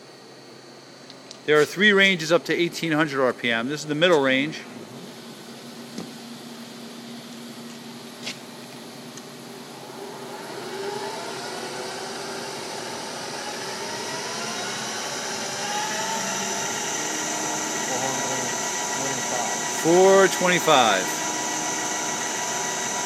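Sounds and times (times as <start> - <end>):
lathe spindle whine: 9.3 - 23.0.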